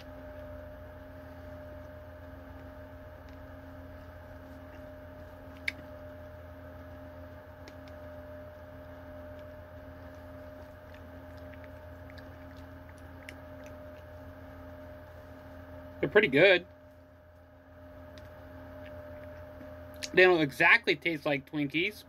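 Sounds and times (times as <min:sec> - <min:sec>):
electrical room hum: 0:00.0 - 0:22.0.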